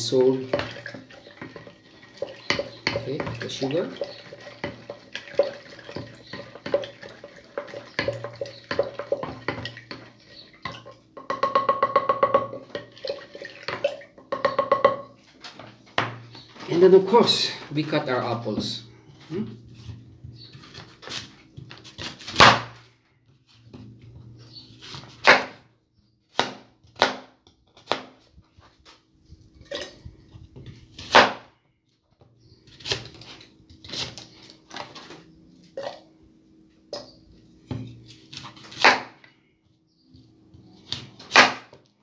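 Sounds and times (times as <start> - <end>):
knife cutting apples: 32.7 - 34.9, 37.8 - 39.2, 40.2 - 41.8.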